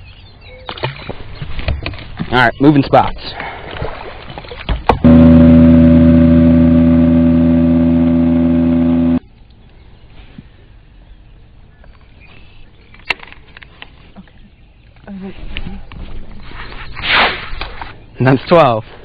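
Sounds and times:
outboard motor running: 5.0 - 9.2.

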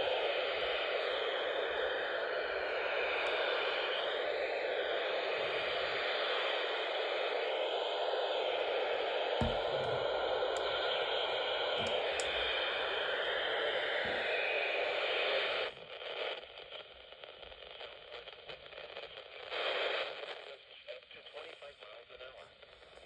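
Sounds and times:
faint radio crackle: 0.0 - 23.0
radio static hiss: 0.0 - 23.0
faint handling knocks: 9.4 - 10.2.

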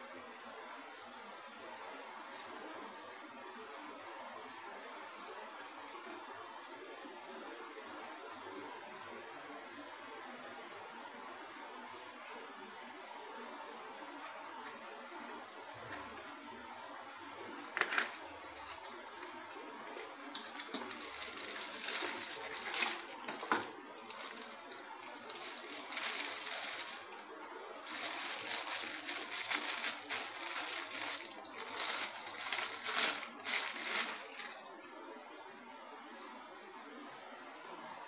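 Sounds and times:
plastic wrap crinkling: 17.6 - 34.7.

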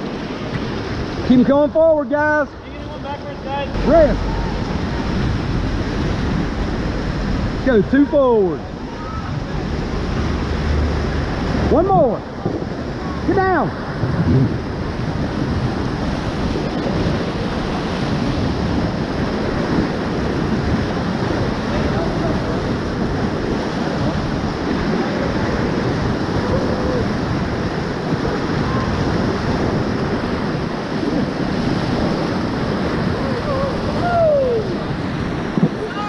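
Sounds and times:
whitewater rapids rushing: 0.0 - 36.0.

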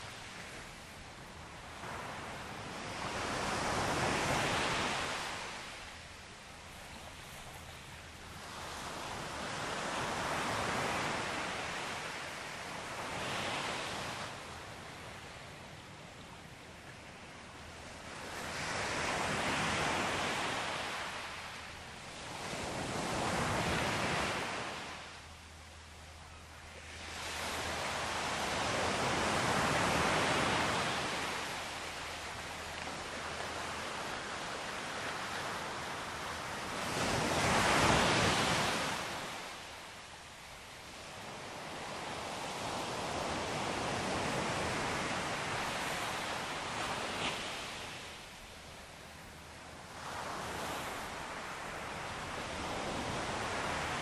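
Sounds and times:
sea waves washing onto beach: 26.7 - 40.0.

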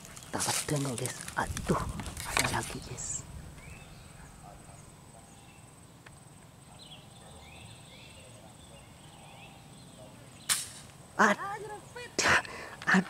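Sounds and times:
faint bird chirps: 2.8 - 10.5
air rifle shot: 10.5 - 10.9.

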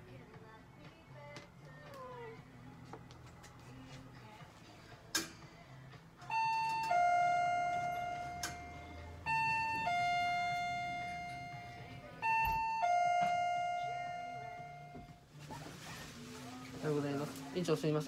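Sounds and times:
two-tone electronic chime: 6.3 - 15.2.

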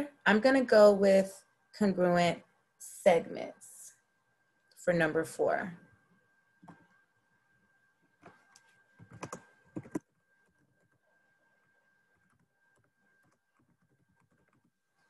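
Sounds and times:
keyboard typing: 8.2 - 11.0, 12.1 - 14.8.

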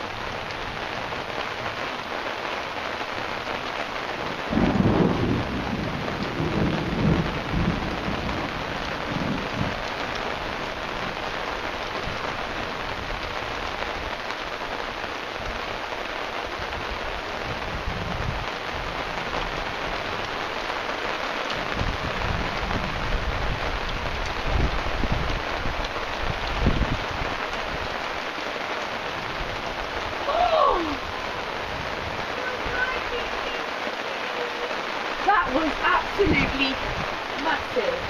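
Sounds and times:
steady rain falling: 0.0 - 38.0
low rolling thunder: 4.3 - 11.2, 21.6 - 27.9.

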